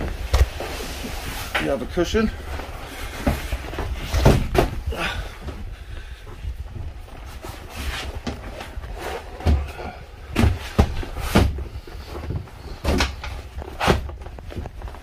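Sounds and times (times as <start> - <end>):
knocks and thumps of cushions: 2.6 - 5.7, 6.6 - 15.0.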